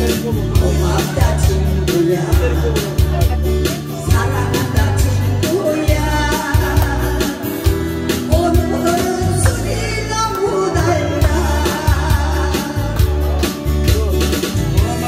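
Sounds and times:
bass-heavy beat: 0.0 - 15.0
woman singing pop song: 0.0 - 15.0.

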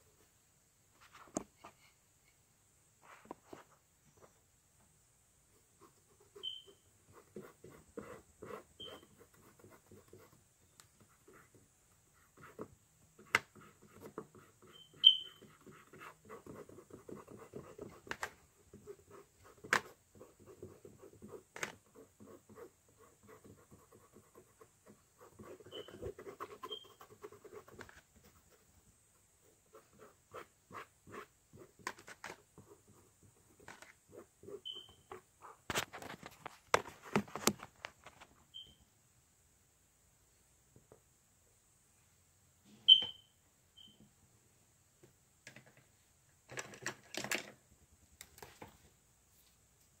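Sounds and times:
paintbrush scratching on canvas: 11.1 - 18.1, 18.7 - 28.7, 29.5 - 31.9.

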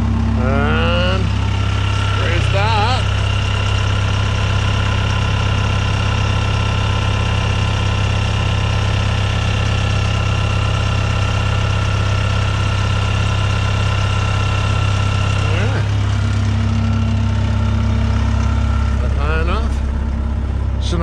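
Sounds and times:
high whine: 0.0 - 3.4
drill rig engine running: 0.0 - 21.0.

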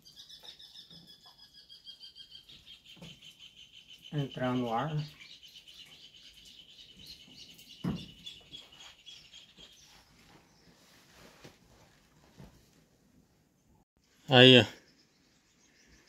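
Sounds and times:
faint rustling: 8.6 - 13.3.

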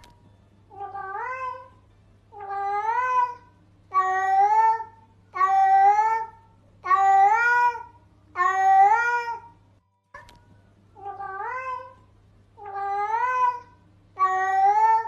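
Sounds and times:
cat meowing: 0.7 - 9.5, 11.0 - 12.0, 12.6 - 15.0
click: 10.2 - 10.5.

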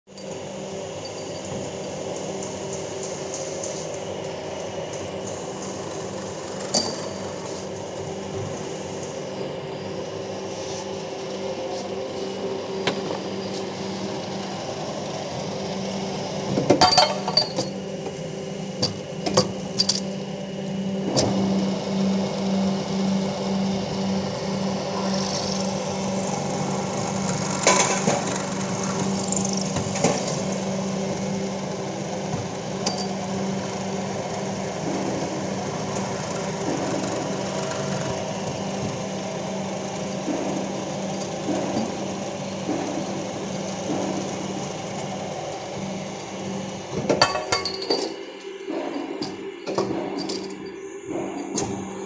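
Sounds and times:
lathe humming: 0.2 - 16.6, 17.2 - 47.1
metal cutting under coolant: 23.7 - 33.6.

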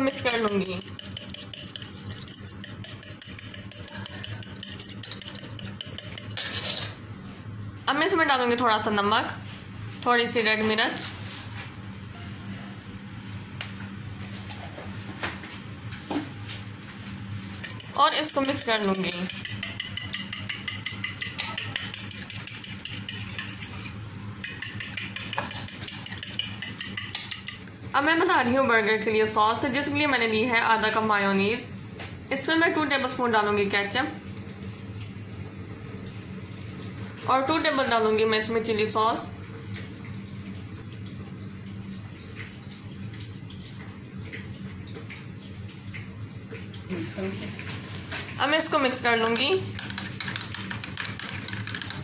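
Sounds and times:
fork whisking eggs in bowl: 0.0 - 6.9, 17.5 - 27.6, 49.1 - 52.0.

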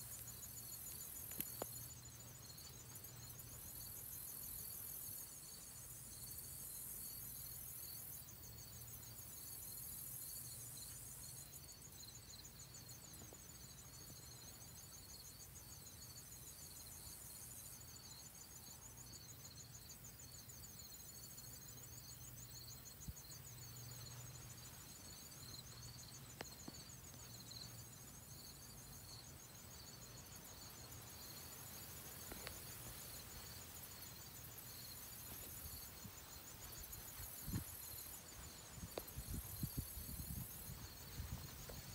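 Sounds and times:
insect pulsing call: 0.0 - 41.9
insect trill: 0.0 - 41.9
faint clicks: 0.9 - 1.8.

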